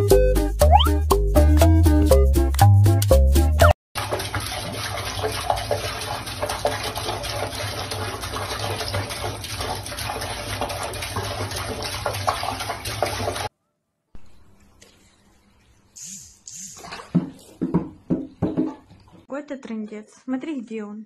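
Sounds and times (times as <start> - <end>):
tap water splashing into sink: 4.0 - 13.5, 16.8 - 19.3.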